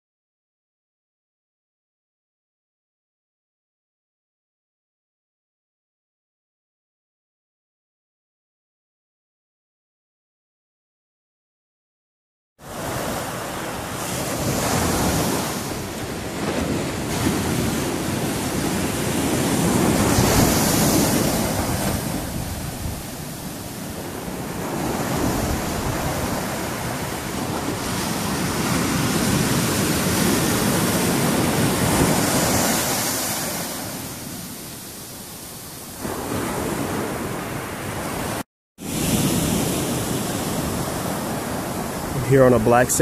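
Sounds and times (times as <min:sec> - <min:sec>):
ocean surf breaking: 0:12.6 - 0:43.0.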